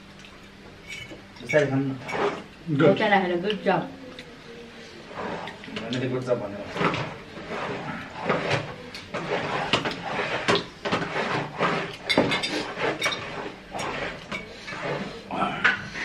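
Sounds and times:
utensils clicking on ceramic bowls: 0:00.2 - 0:02.6.

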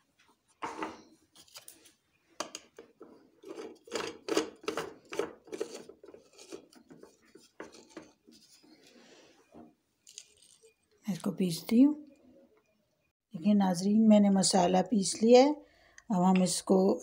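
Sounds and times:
onion flakes rustling in plastic cup: 0:05.0 - 0:08.9, 0:10.0 - 0:11.3.

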